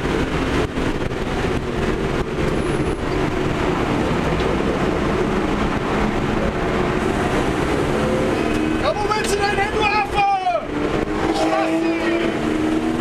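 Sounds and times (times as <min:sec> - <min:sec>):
car engine at high revs: 0:00.0 - 0:13.0
wind and road noise: 0:00.0 - 0:13.0.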